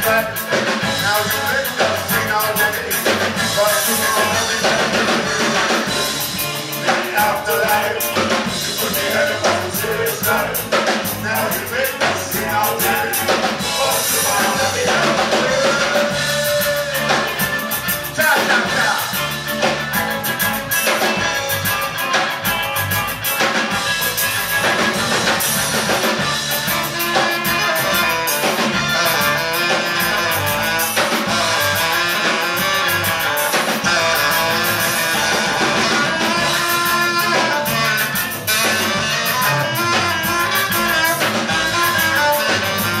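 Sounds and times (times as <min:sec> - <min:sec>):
person singing: 0:00.0 - 0:19.3, 0:26.9 - 0:32.7
live rock band: 0:00.0 - 0:43.0.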